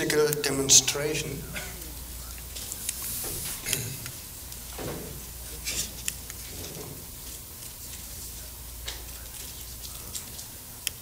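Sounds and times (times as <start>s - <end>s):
person speaking: 0.0s - 6.4s
steady low hum: 0.0s - 11.0s.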